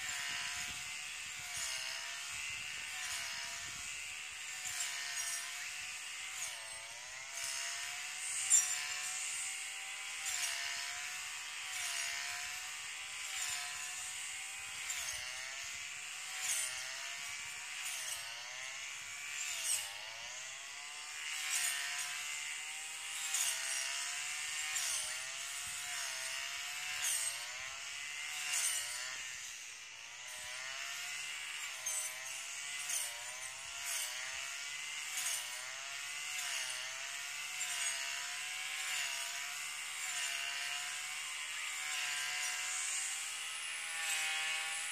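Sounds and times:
distant brush cutter whining: 0.0 - 44.9.

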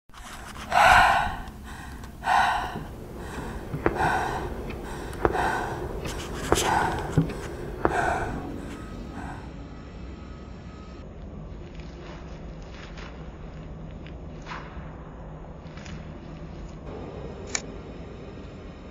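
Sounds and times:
person breathing heavily: 0.1 - 10.0.

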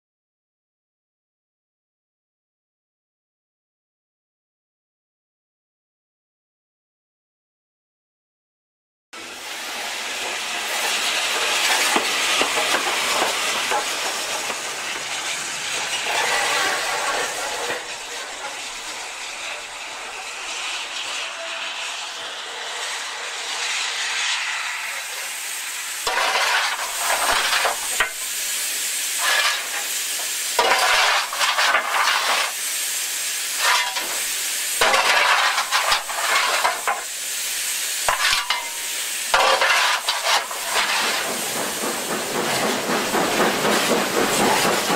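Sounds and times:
steam locomotive hissing: 9.2 - 44.9
shovelling coal: 10.2 - 22.0, 26.0 - 41.5
irregular bursts and scrapes: 11.6 - 21.6, 26.1 - 28.2, 29.2 - 30.0, 30.6 - 32.6, 34.8 - 37.0, 39.4 - 42.7.

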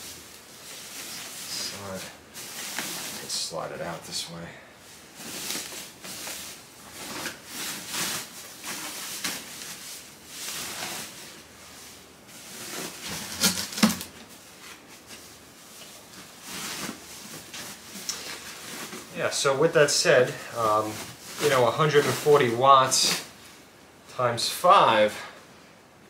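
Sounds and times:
plastic wrapping crinkling: 0.0 - 4.0, 5.0 - 23.5.

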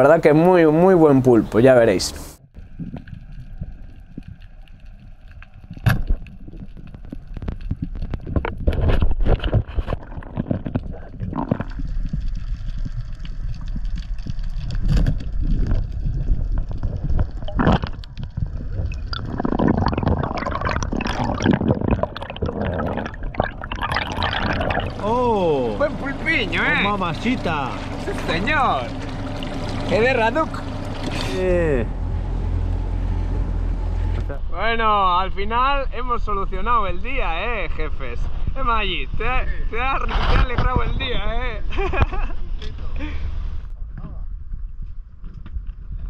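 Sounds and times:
water churning and bubbling: 2.5 - 34.2
water rushing and gurgling: 9.9 - 34.2.

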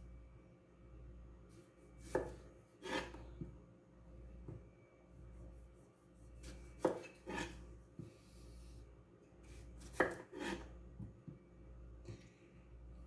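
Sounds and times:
knife chopping on wooden board: 2.0 - 3.5, 6.4 - 8.1, 9.8 - 11.1.

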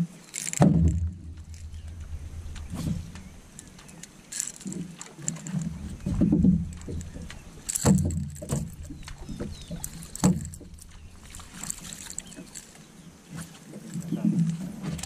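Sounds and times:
water lapping against boat hull: 0.0 - 15.0
low rumble: 0.8 - 4.0, 5.8 - 12.7.

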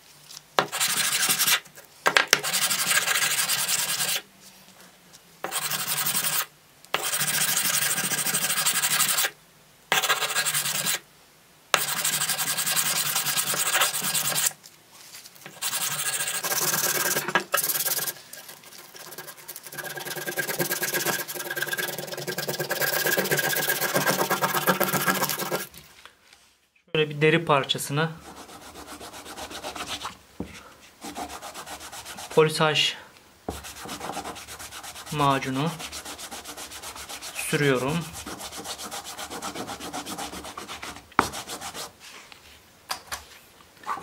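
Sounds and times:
sandpaper scraping steel blade: 0.7 - 1.7, 2.4 - 4.2, 5.5 - 9.3, 9.9 - 11.0, 11.8 - 14.5, 15.5 - 25.7, 31.0 - 32.4, 33.5 - 42.0.

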